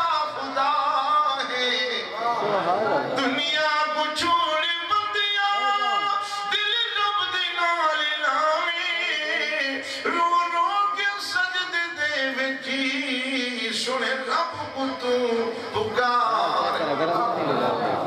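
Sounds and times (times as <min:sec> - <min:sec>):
man singing ornamented notes: 0:03.2 - 0:16.8.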